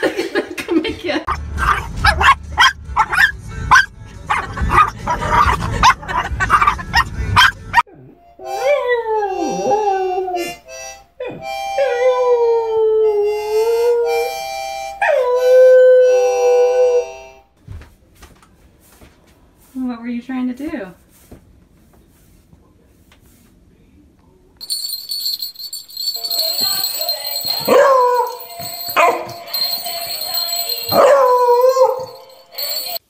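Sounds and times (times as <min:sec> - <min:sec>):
car road noise: 0:01.3 - 0:07.8
dog yipping: 0:01.6 - 0:07.8, 0:27.4 - 0:29.5, 0:30.9 - 0:32.3
harmonica chords: 0:08.2 - 0:12.4, 0:13.1 - 0:17.6
dog howling: 0:08.4 - 0:10.6, 0:27.5 - 0:29.7, 0:30.9 - 0:32.3.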